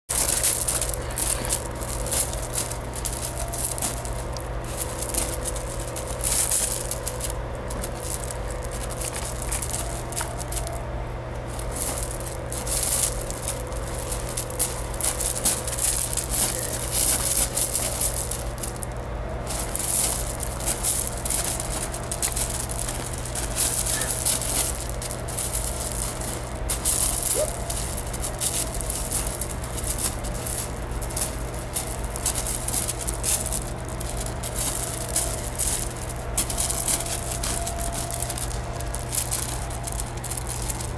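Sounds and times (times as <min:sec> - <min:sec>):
steady low hum: 0:00.0 - 0:40.9
gravel crunching under paws and feet: 0:00.1 - 0:40.9.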